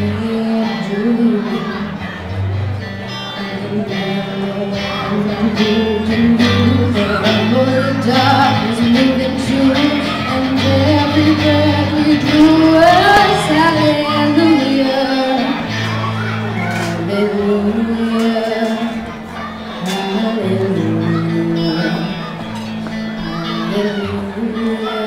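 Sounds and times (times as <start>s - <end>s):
woman singing: 0.0s - 2.0s, 3.2s - 15.8s, 16.7s - 25.0s
bass notes: 0.0s - 25.0s
electric guitar: 0.0s - 25.0s.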